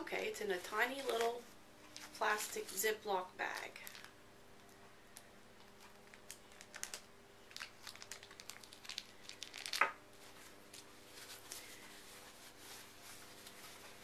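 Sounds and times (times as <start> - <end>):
thin plastic bag crinkling: 3.4 - 14.0.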